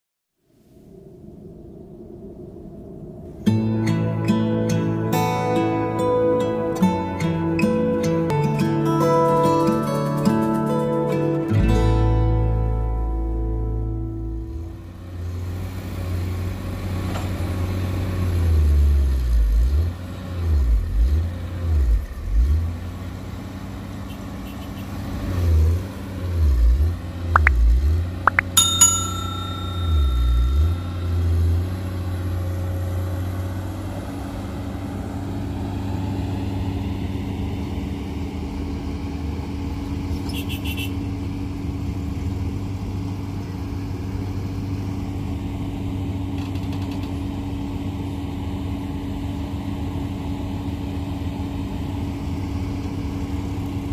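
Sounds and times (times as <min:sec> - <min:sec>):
diesel engine droning: 0:00.9 - 0:53.9
bell-like ding: 0:28.3 - 0:32.1.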